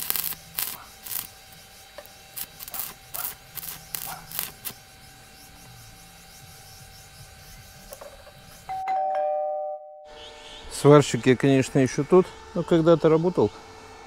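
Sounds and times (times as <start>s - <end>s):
scraping crackling on steel rebar: 0.0s - 1.4s, 2.3s - 4.8s.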